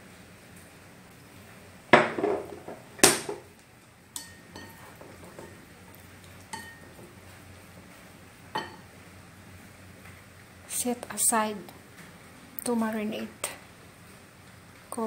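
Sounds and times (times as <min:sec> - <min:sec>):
chopsticks clinking on ceramic bowl: 0:04.2 - 0:05.6, 0:06.5 - 0:06.8.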